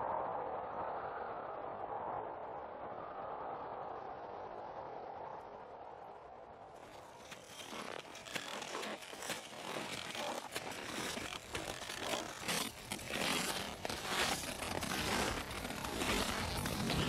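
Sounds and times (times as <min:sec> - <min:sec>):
boots crunching through snow: 0:06.8 - 0:17.0.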